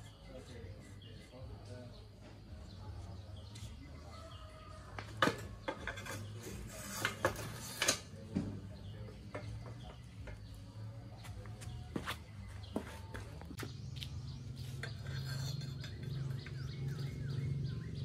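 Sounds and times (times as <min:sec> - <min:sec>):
metal clinks and knocks: 0:14.8 - 0:16.7.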